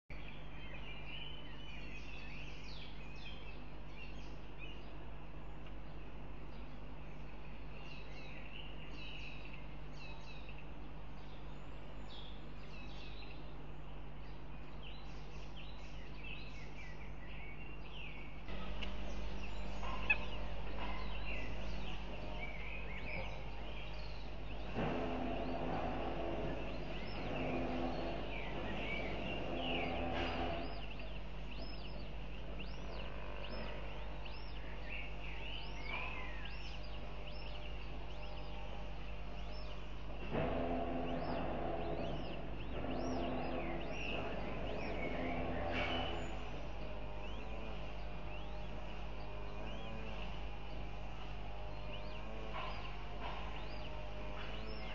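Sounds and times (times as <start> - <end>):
birds chirping: 0.1 - 54.9
low steady microphone hum: 0.1 - 54.9
lower-pitched bird call: 16.0 - 54.9.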